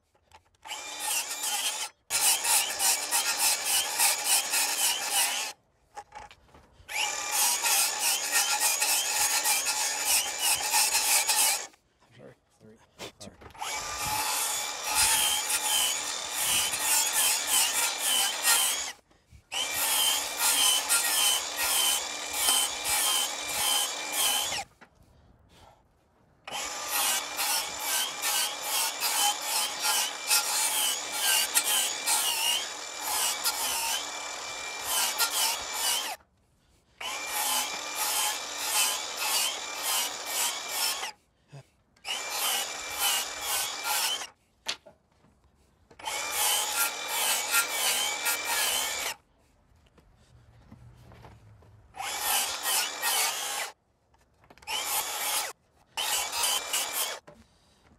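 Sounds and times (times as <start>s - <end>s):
sped-up circular saw cutting wood: 0.6s - 5.6s, 6.9s - 11.8s, 13.5s - 24.7s, 26.5s - 36.2s, 37.0s - 41.2s, 42.0s - 44.4s, 46.0s - 49.2s, 52.0s - 53.8s, 54.6s - 57.3s.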